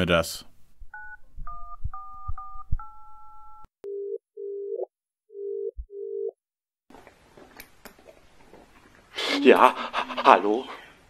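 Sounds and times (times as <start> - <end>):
phone line ringback beeps: 0.9 - 6.3.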